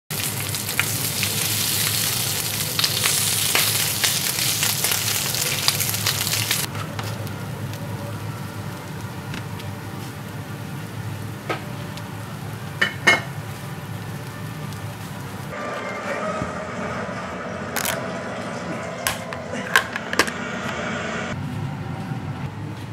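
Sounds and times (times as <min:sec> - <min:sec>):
eggs sizzling in butter: 0:00.1 - 0:16.4.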